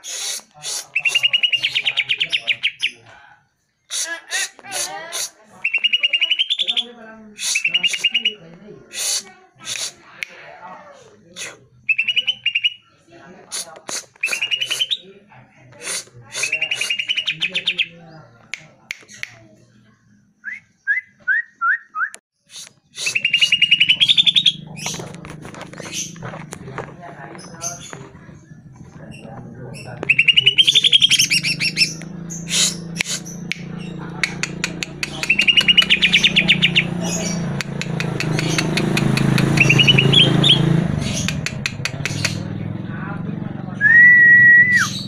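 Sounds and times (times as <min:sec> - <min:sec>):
bird singing and trilling: 0:00.0 - 0:03.2, 0:05.6 - 0:08.5, 0:11.8 - 0:13.0, 0:14.1 - 0:15.2, 0:16.3 - 0:19.5, 0:20.4 - 0:42.8, 0:43.7 - 0:45.0
sharp clicking bird notes: 0:29.8 - 0:42.6.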